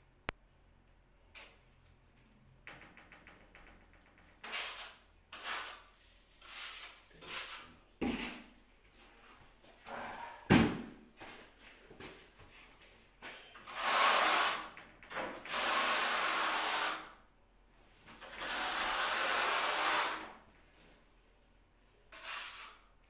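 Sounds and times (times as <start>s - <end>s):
trowel scraping adhesive: 4.4s - 8.5s, 13.7s - 14.7s, 18.2s - 20.3s, 22.1s - 23.0s.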